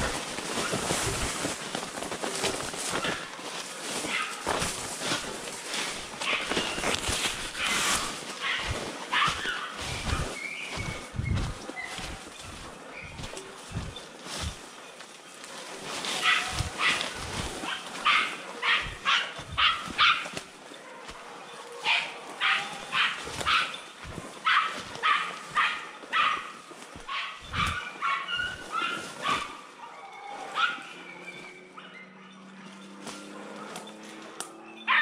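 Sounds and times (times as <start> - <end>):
dogs barking: 0.0 - 14.7, 15.5 - 35.0.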